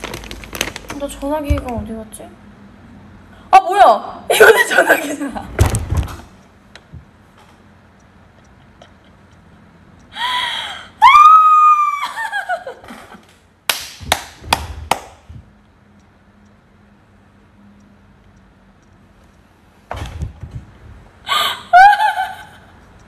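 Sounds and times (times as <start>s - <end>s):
woman squealing laughter: 11.0s - 13.1s, 21.3s - 22.7s.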